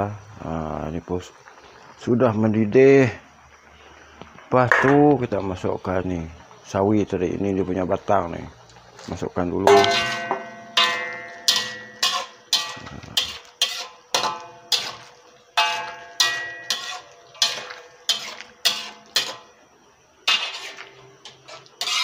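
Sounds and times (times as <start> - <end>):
metal utensils clanking on wok: 9.7 - 19.5, 20.3 - 22.0.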